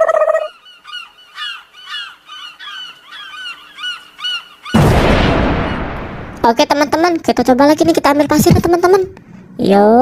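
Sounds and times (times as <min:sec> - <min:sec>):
bird-like chirping calls: 0:00.0 - 0:04.8.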